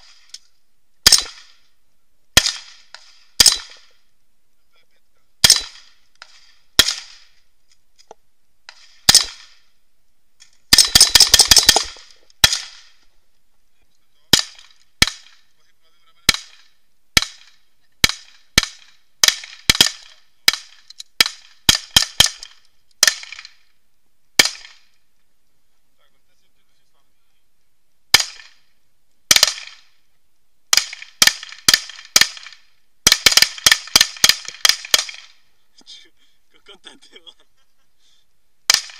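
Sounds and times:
handgun shots: 0:01.0 - 0:01.6, 0:02.4 - 0:03.9, 0:05.4 - 0:07.3, 0:08.7 - 0:09.6, 0:10.7 - 0:13.0, 0:29.3 - 0:29.9, 0:38.7 - 0:38.9
rifle gunfire: 0:01.0 - 0:01.7, 0:02.4 - 0:04.0, 0:05.4 - 0:07.4, 0:08.7 - 0:09.7, 0:10.7 - 0:13.0, 0:14.3 - 0:15.5, 0:16.2 - 0:23.7, 0:24.4 - 0:25.0, 0:28.1 - 0:28.7, 0:29.3 - 0:30.0, 0:30.7 - 0:35.5, 0:38.7 - 0:38.9.

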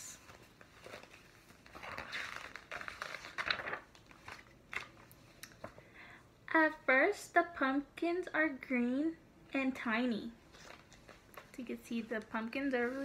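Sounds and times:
paper pages rustling: 0:00.1 - 0:05.8, 0:10.5 - 0:13.0.

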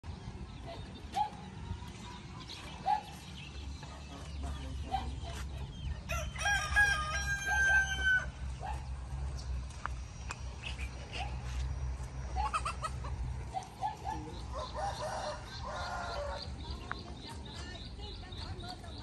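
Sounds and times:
rooster crowing: 0:06.1 - 0:08.4, 0:14.5 - 0:16.5
chicken clucks: 0:12.3 - 0:17.1.

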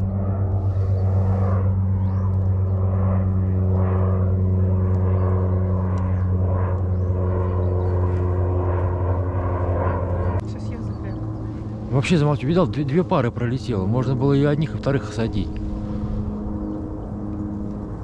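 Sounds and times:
low engine drone: 0:00.0 - 0:18.0
faint bird calls: 0:10.2 - 0:12.5.

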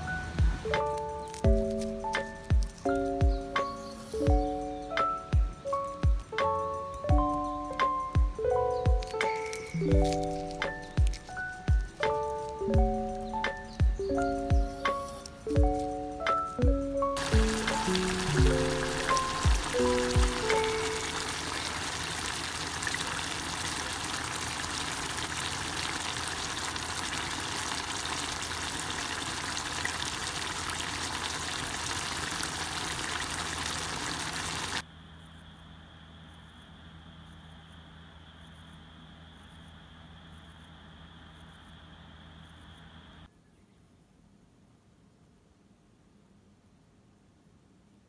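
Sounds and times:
food sizzling in a pot: 0:17.2 - 0:34.8.

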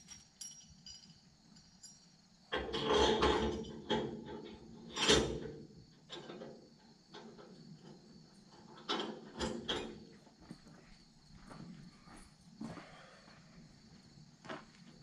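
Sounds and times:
metal clanks and scrapes: 0:02.6 - 0:05.5, 0:08.5 - 0:10.2.

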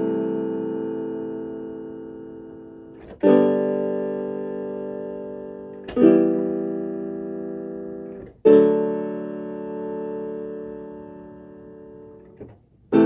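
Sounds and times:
keyboard chords ringing: 0:00.0 - 0:13.0.

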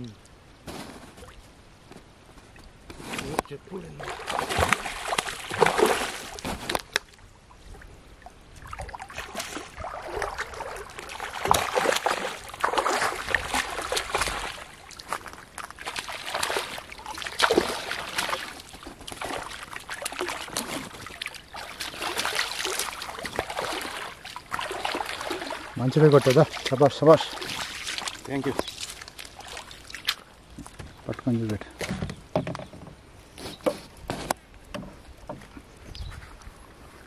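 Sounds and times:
wading through shallow water: 0:02.4 - 0:31.8
fish thrashing and splashing: 0:04.0 - 0:07.0, 0:08.7 - 0:30.7.

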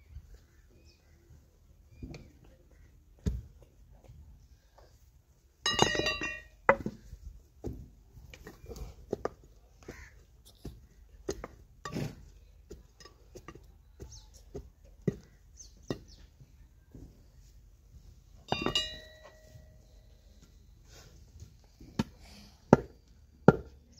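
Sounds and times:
short ringing clink: 0:18.5 - 0:20.1.

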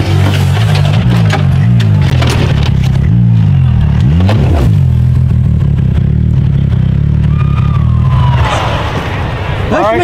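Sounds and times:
vehicle body scraping ground: 0:00.0 - 0:04.9
engine revving: 0:00.0 - 0:09.4.

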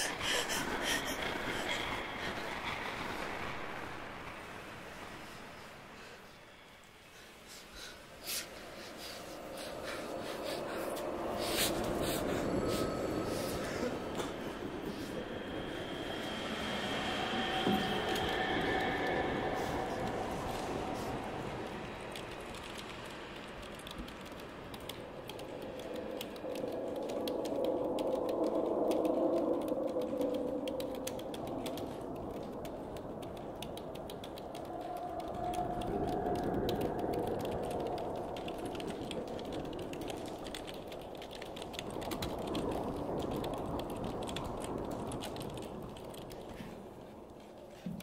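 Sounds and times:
low murky drone: 0:08.5 - 0:47.4
keyboard typing: 0:33.6 - 0:42.2.

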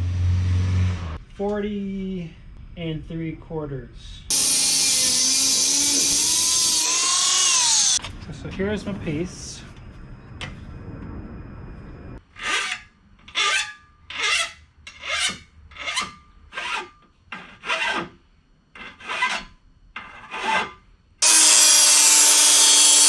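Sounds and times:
angle grinder cutting metal: 0:04.3 - 0:08.0, 0:21.2 - 0:23.0
hand file scraping metal: 0:12.3 - 0:18.2, 0:18.8 - 0:23.0.

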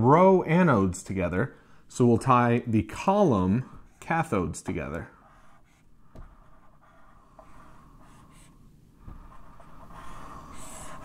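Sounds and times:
marker drawing on whiteboard: 0:02.6 - 0:11.0.

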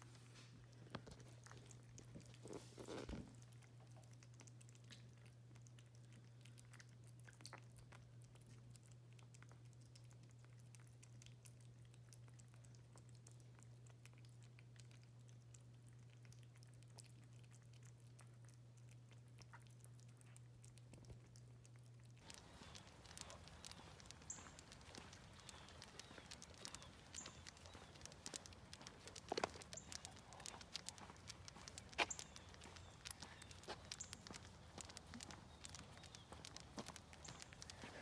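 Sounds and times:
kittens lapping and chewing: 0:00.0 - 0:38.0
steady low hum: 0:18.0 - 0:38.0.

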